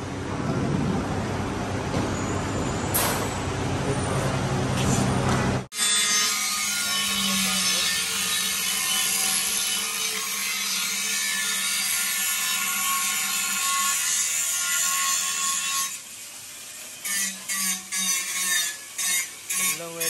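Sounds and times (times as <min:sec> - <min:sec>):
angle grinder grinding metal: 0:05.7 - 0:20.0.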